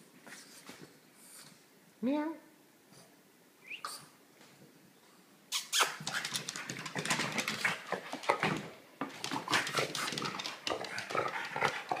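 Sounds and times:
dog making short noises: 5.5s - 6.4s
dog paws on hardwood floor: 5.8s - 12.0s.

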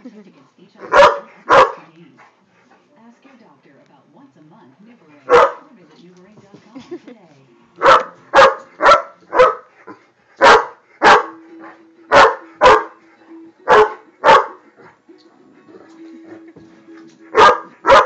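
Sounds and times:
large dog barking: 0.8s - 1.8s, 5.3s - 5.6s, 7.8s - 11.4s, 12.1s - 13.0s, 13.7s - 14.6s, 17.3s - 18.0s.

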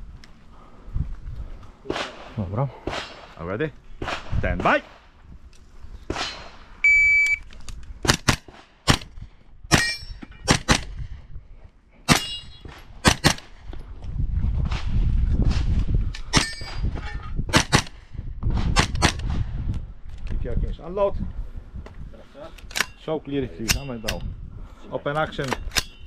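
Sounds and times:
shot timer beep: 6.8s - 7.4s
steel targets ringing: 9.7s - 10.5s, 12.1s - 12.6s.

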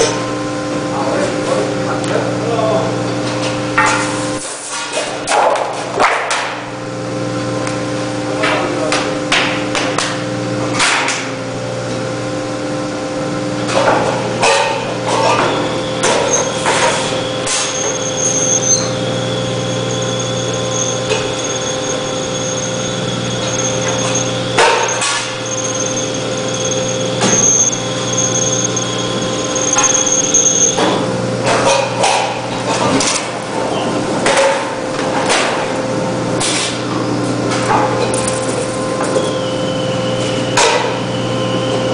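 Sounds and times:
cutting machine humming: 14.6s - 33.1s
high whine: 14.6s - 33.3s.

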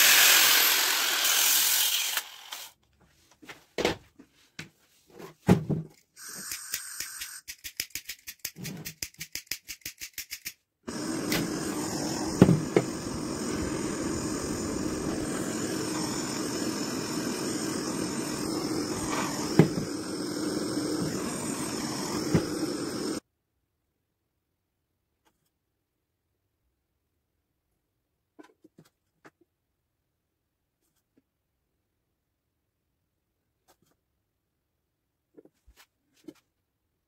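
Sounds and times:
blowtorch hissing: 0.0s - 2.6s, 10.9s - 23.2s
clicks and ticks: 6.4s - 10.6s
polishing wheel stopping: 10.9s - 23.2s.

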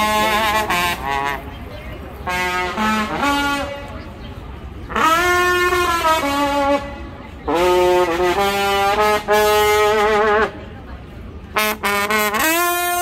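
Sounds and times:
brass instrument held notes: 0.0s - 1.4s.

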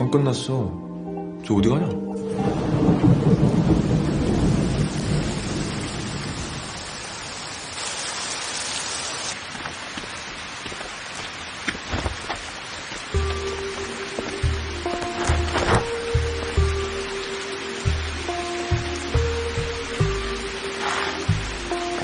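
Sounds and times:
music: 0.0s - 4.0s, 13.2s - 22.0s
thunder rumble: 2.3s - 7.6s
rain on pavement: 2.4s - 22.0s.

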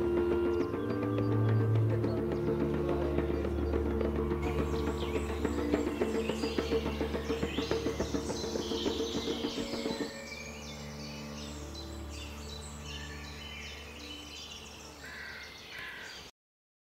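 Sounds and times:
rhythmic music: 0.0s - 10.5s
birds chirping and singing: 0.0s - 16.3s
loud low bird calls: 0.0s - 16.3s.

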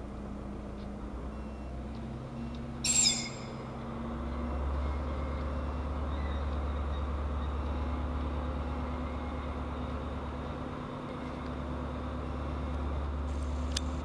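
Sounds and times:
diesel train engine drone: 0.0s - 14.0s.

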